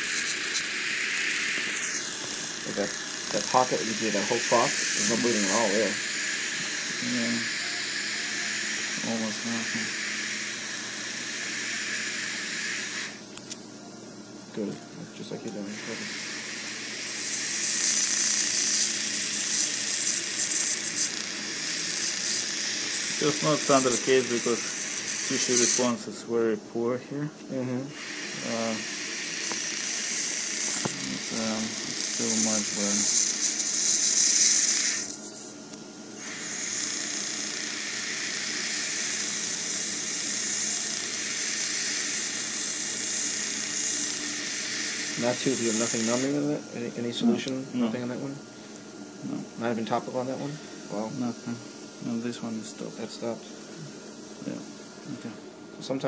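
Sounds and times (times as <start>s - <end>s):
dental laser crackling: 0.0s - 13.6s, 15.7s - 26.1s, 28.0s - 48.3s
hissing air-water spray: 36.2s - 46.3s.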